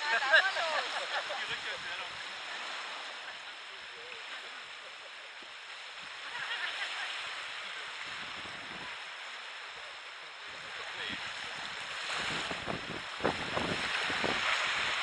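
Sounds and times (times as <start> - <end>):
surf washing on beach: 0.0 - 15.0
wind buffeting microphone: 8.0 - 9.2, 10.4 - 15.0.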